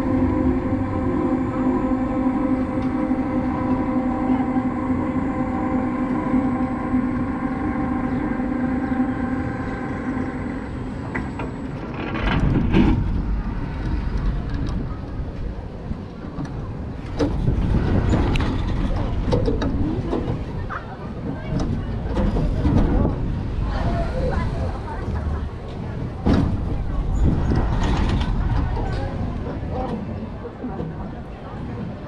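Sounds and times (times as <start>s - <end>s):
coaster rumbling on steel track: 0.0s - 32.0s
steady mechanical hum: 0.0s - 32.0s.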